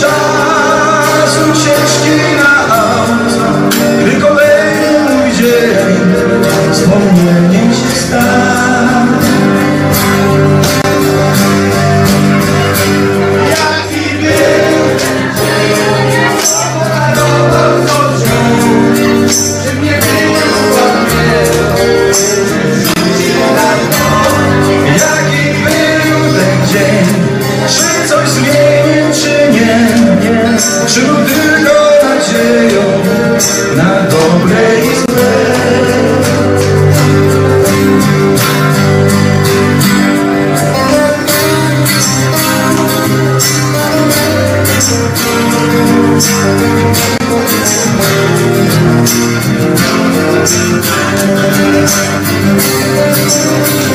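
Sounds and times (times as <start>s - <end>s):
man singing: 0.0s - 11.1s, 11.8s - 38.1s, 40.2s - 48.5s, 49.6s - 53.9s
acoustic guitars playing: 0.0s - 53.9s.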